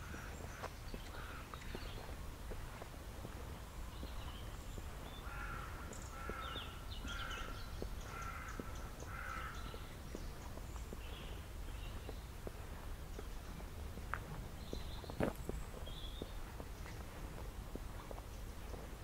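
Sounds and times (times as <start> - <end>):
crow cawing: 0.0 - 1.5, 5.2 - 9.7
faint footsteps: 0.0 - 19.0
small birds chirping: 0.0 - 19.0.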